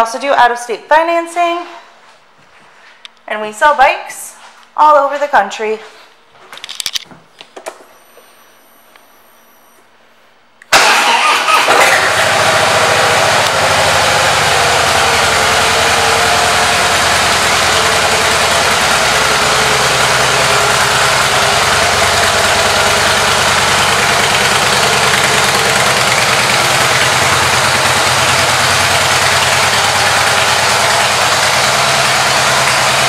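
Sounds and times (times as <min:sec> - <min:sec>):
motorcycle engine idling: 0:12.0 - 0:33.0.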